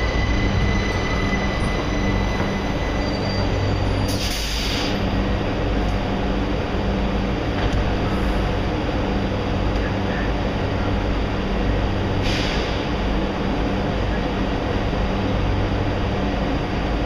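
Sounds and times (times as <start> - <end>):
railcar equipment humming: 0.0 - 17.0
air hiss: 4.1 - 5.0.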